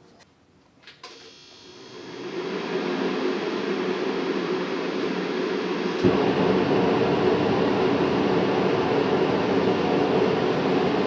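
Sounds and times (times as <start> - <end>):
heater fan running: 1.1 - 11.0
heater steady rush: 1.2 - 11.0
burner igniting thump: 6.0 - 11.0.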